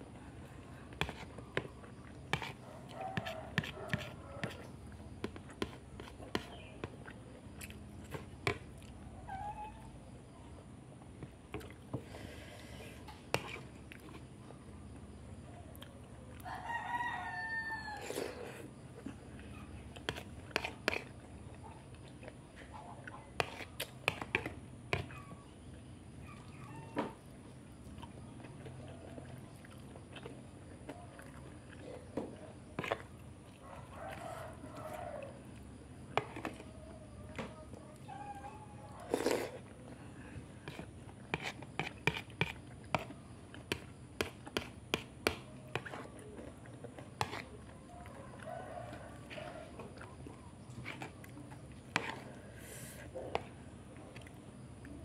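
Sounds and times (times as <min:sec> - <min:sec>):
person chewing: 0:00.8 - 0:09.0, 0:27.9 - 0:32.2, 0:32.8 - 0:36.7, 0:39.0 - 0:48.5, 0:49.2 - 0:55.0.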